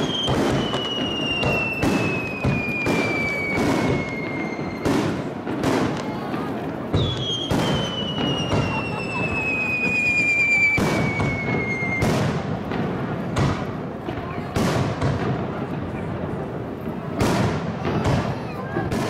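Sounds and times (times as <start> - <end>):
falling firework whistle: 0.0 - 12.4.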